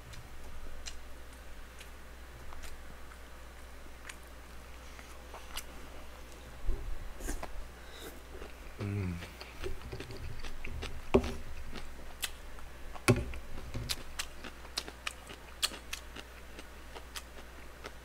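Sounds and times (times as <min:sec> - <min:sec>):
person chewing: 0:00.8 - 0:03.2, 0:07.3 - 0:13.1, 0:13.9 - 0:18.0
person humming: 0:08.8 - 0:09.6.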